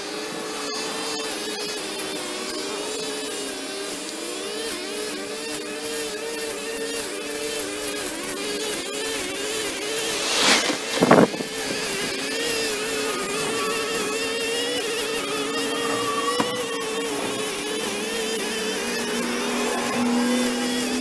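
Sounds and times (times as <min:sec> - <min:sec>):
brush cutter engines running: 0:00.0 - 0:21.0
lower pitched engine: 0:09.0 - 0:21.0.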